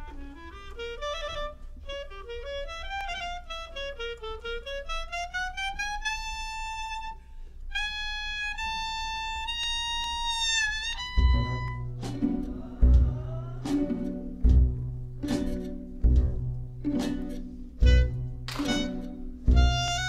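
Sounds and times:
solo violin playing: 17.5 - 20.0.

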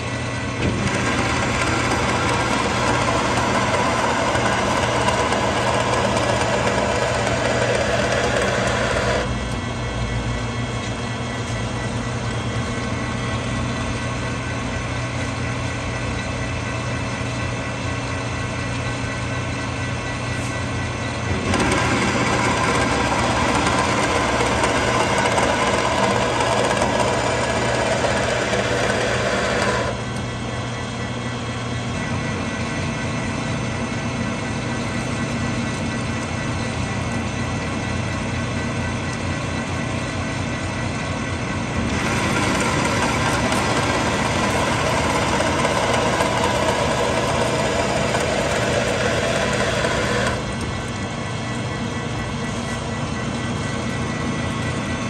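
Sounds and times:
lathe tool cutting metal: 0.0 - 9.5, 19.1 - 31.1, 38.8 - 55.0
metal lathe running: 0.0 - 55.0.

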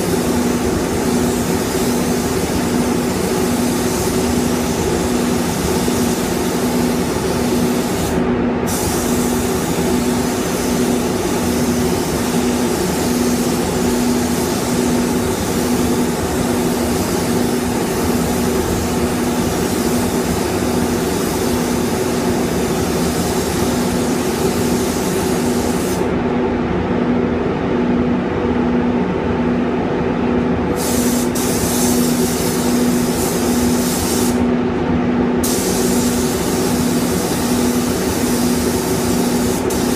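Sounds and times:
paint spray gun hissing: 0.0 - 26.1, 30.7 - 34.5, 35.4 - 39.9.

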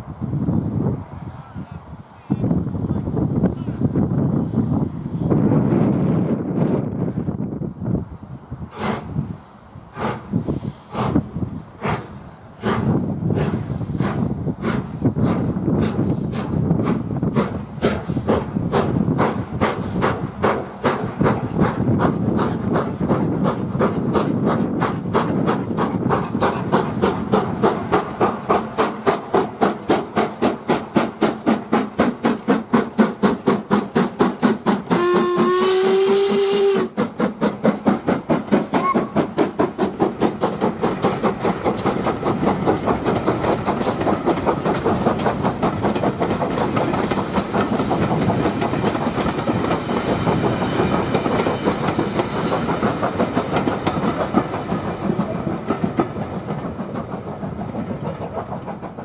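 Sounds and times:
steam locomotive exhaust beats: 0.0 - 59.0
train wheels clattering: 8.7 - 9.2, 9.9 - 59.0
steam whistle blast: 34.9 - 37.0, 38.8 - 39.2.

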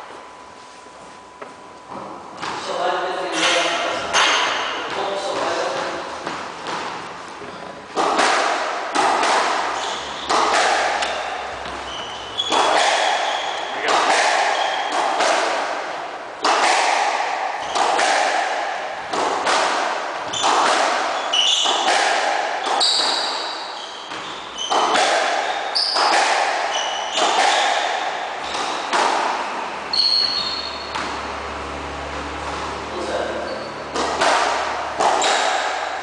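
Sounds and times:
squash ball hits echoing: 1.9 - 7.2, 7.8 - 36.0
sneaker squeaks on wooden floor: 9.7 - 15.0, 20.2 - 21.9, 22.6 - 28.9, 29.5 - 31.3, 33.4 - 34.0.

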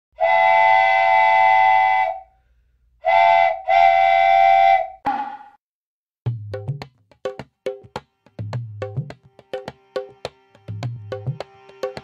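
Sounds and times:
steam train whistle blasts: 0.2 - 2.3, 3.0 - 5.3.

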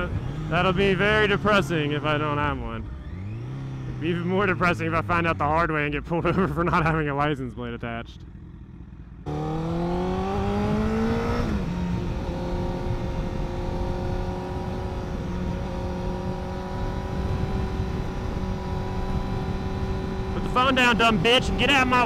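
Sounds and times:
motorcycle engine rising in pitch: 0.0 - 6.0, 7.6 - 22.0
wind noise: 10.1 - 22.0.

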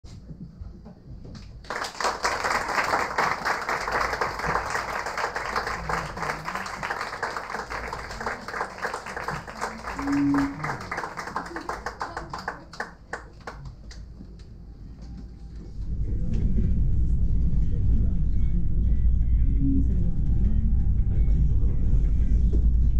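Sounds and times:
audience clapping: 1.6 - 14.5.

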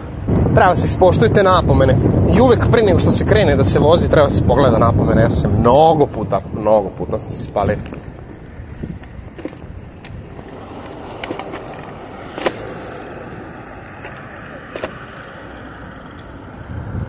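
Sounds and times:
bike wheels rolling on pavement: 0.0 - 17.0
bike knocking over bumps: 7.8 - 15.4.

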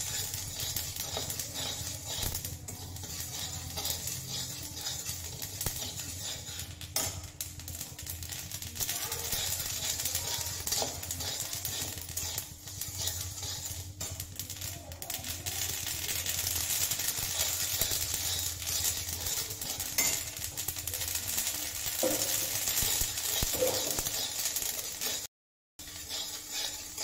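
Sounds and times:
spatula scraping roasting seeds: 0.0 - 27.0.

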